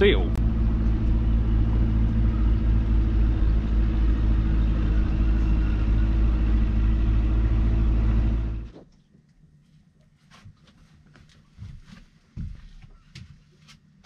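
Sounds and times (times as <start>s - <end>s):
motorboat engine droning: 0.0s - 8.8s.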